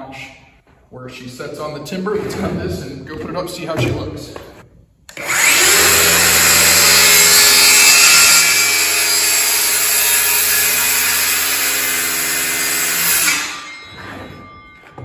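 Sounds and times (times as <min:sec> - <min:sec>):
circular saw cutting wood: 0:05.1 - 0:15.0.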